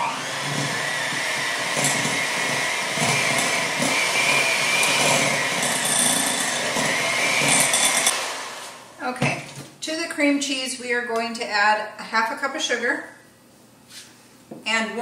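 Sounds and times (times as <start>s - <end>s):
electric hand mixer whining: 0.0s - 9.0s.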